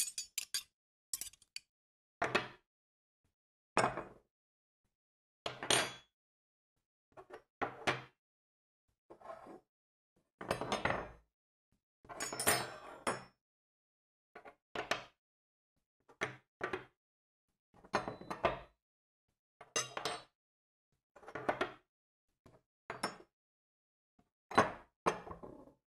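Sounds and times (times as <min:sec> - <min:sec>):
metal cutlery clattering on table: 0:00.0 - 0:01.6.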